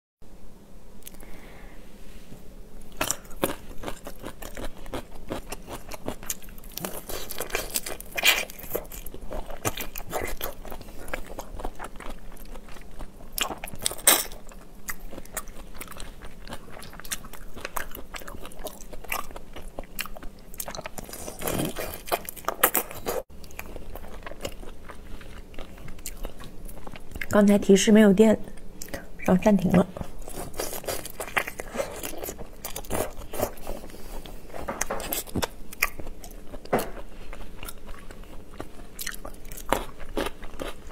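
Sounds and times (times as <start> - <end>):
crunching shrimp shells: 2.9 - 27.3.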